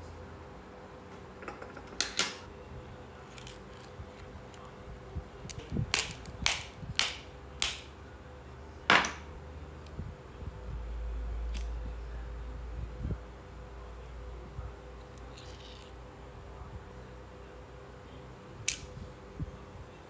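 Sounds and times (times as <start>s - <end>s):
hard objects clicking and knocking: 1.4s - 2.4s.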